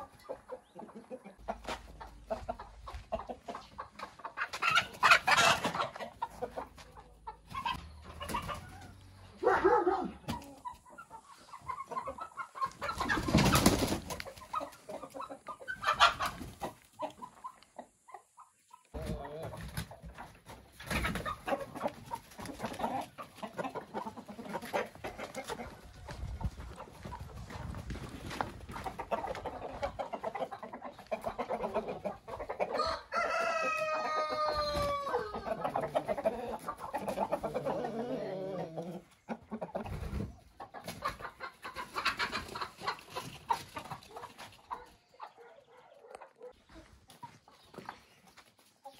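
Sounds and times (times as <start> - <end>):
chickens clucking: 0.0 - 48.9
rooster crowing: 32.8 - 35.5.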